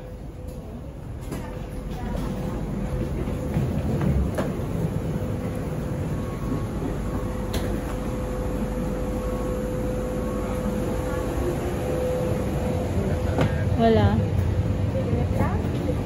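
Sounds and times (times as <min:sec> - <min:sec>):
machinery hum: 0:00.0 - 0:16.0
constant high whine: 0:03.5 - 0:16.0.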